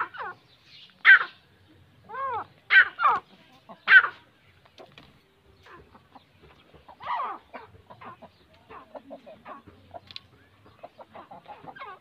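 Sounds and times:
rooster clucking: 0:02.0 - 0:04.3, 0:05.6 - 0:12.0.

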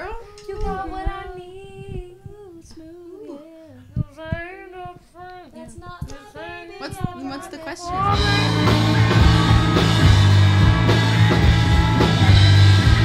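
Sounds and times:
women singing a cappella: 0:00.0 - 0:08.3.

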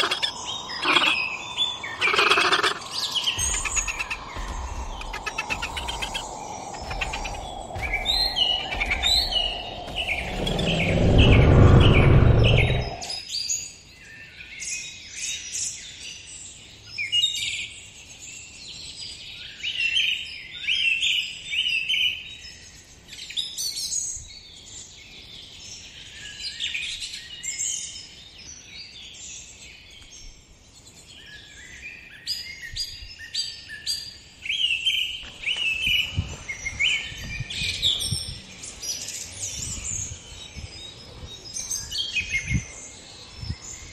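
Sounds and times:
small birds chirping: 0:00.0 - 0:13.2
loud deep rumble: 0:02.7 - 0:13.2.

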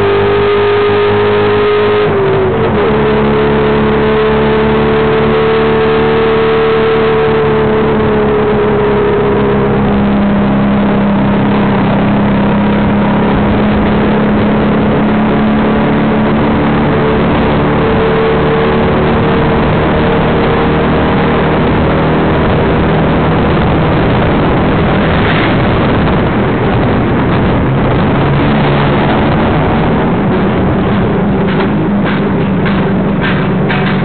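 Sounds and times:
auto rickshaw engine running rough: 0:00.0 - 0:34.0
rush of road noise: 0:00.0 - 0:34.0.

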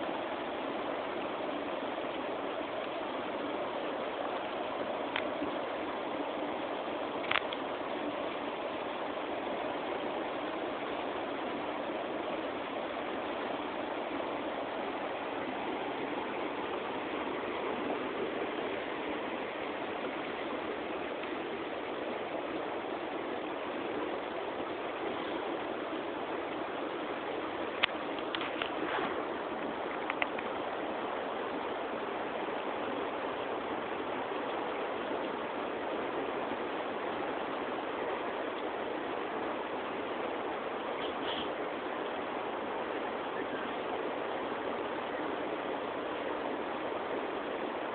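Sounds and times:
river rushing over rocks: 0:00.0 - 0:47.9.

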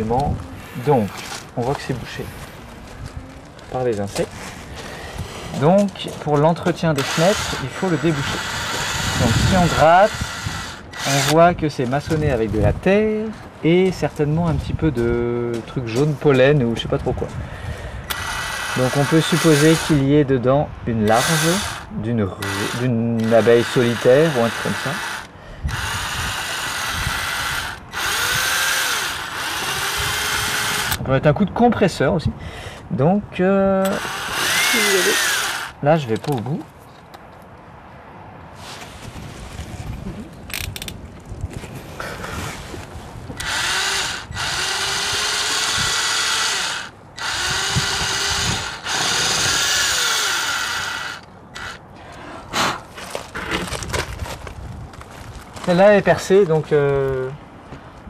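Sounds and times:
power drill running: 0:07.0 - 0:11.4, 0:18.1 - 0:20.0, 0:21.1 - 0:31.0, 0:33.9 - 0:35.8, 0:43.4 - 0:51.8.

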